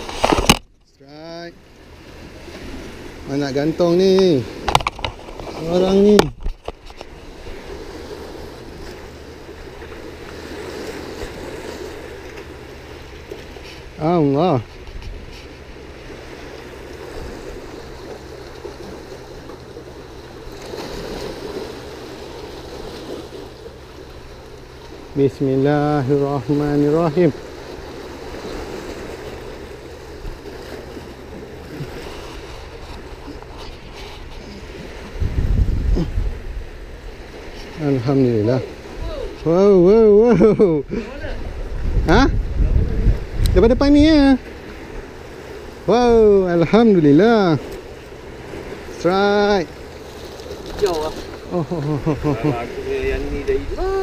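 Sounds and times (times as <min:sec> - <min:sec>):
sea water washing among rocks: 0:00.0 - 0:00.7, 0:02.0 - 0:39.4, 0:41.3 - 0:54.0
waves: 0:00.0 - 0:54.0
wind: 0:00.0 - 0:54.0
wind on microphone: 0:14.6 - 0:16.2, 0:28.2 - 0:37.9, 0:40.8 - 0:46.4.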